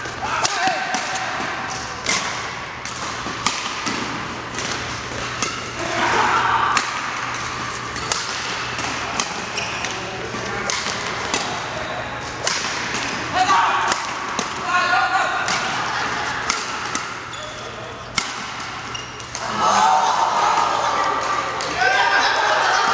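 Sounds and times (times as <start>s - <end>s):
rackets hitting shuttlecock: 0.0s - 19.7s.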